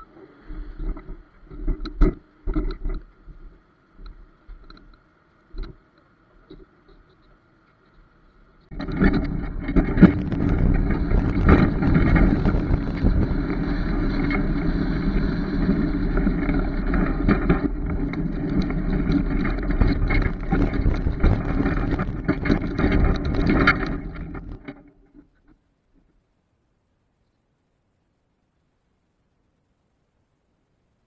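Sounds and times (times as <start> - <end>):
small knocks and rattles: 0.8 - 26.2
truck rumble on road: 8.7 - 24.7
wind buffeting microphone: 8.7 - 24.7.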